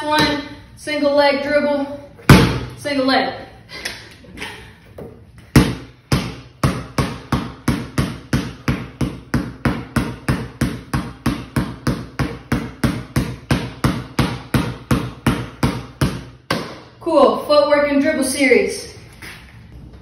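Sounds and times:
basketball bouncing on concrete: 0.0 - 0.5, 2.3 - 2.7, 5.5 - 16.9.

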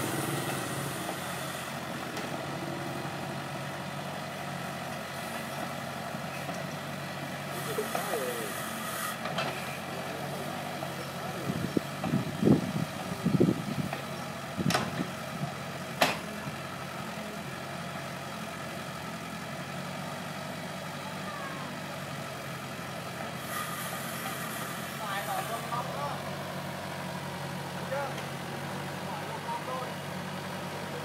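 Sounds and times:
engine bursts: 0.0 - 3.5
diesel engine running: 0.0 - 31.0.

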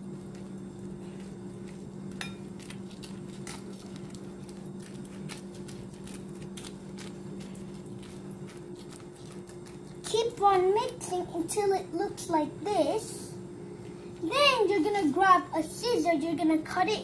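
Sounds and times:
plastic bag crinkling: 2.6 - 10.1.

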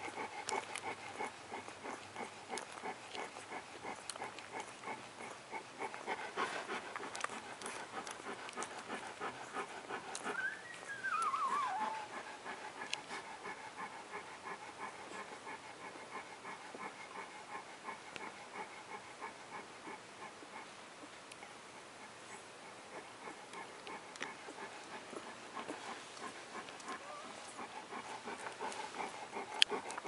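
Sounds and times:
puppies suckling clicks: 0.0 - 30.0
puppy whining: 6.7 - 13.9, 22.3 - 30.0.

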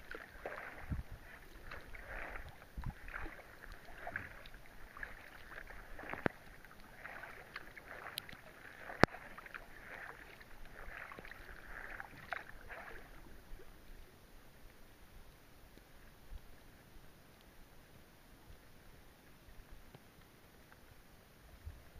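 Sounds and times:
paddle splashing through water: 0.0 - 14.1
rain falling on lake: 0.0 - 21.9.

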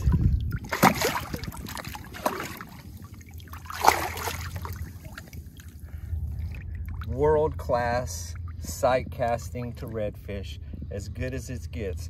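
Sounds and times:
fish splashing in shallow water: 0.0 - 7.2.

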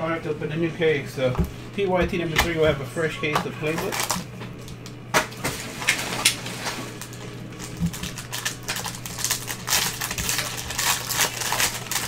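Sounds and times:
foil wrapper crinkling and tearing: 3.7 - 4.8, 5.8 - 12.0.

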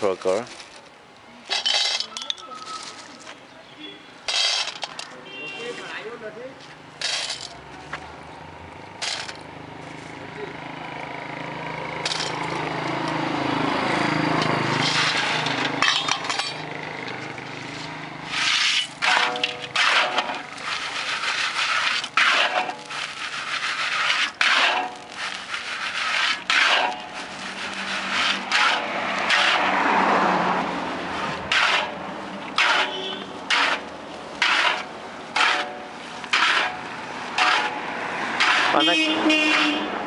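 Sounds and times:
salt scraped around a pan: 17.6 - 29.7, 32.6 - 37.8.

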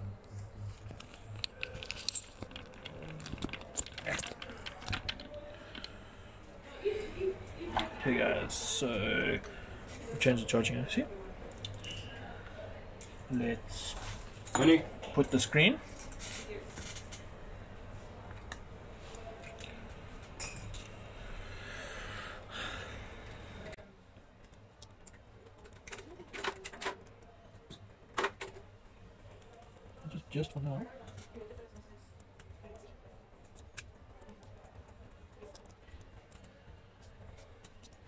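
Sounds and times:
steady low hum: 0.0 - 25.7.

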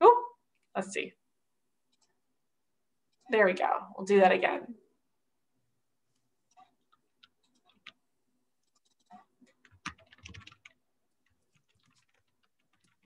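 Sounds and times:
typing on computer keyboard: 6.5 - 8.0, 8.6 - 13.0.

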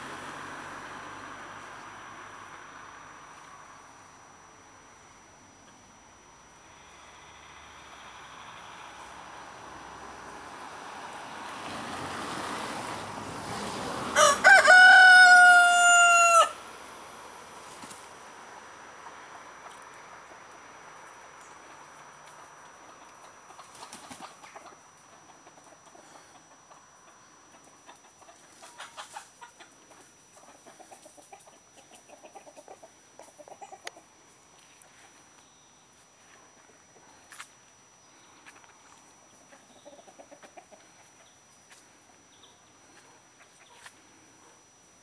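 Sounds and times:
rooster crowing: 14.1 - 16.6
chickens clucking: 21.5 - 35.0, 38.4 - 44.6.

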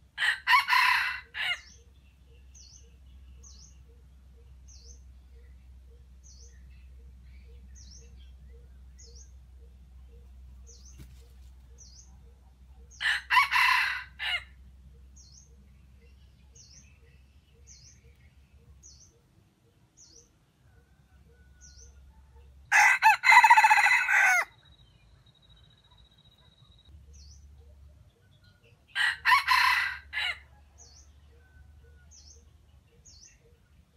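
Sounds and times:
rooster crowing: 0.2 - 1.7, 13.0 - 14.5, 22.7 - 24.5, 29.0 - 32.0
faint high chirp: 24.6 - 28.6.

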